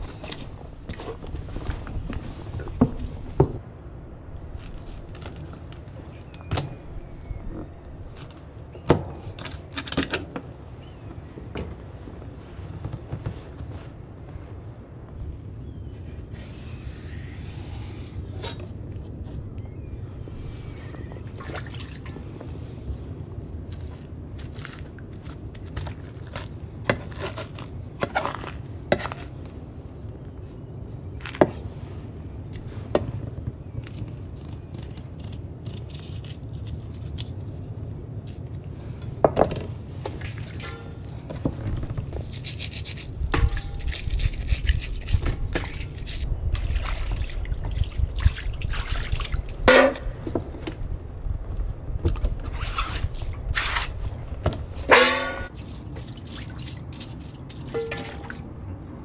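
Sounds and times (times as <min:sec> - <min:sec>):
steady low rumble: 0:00.0 - 0:08.7.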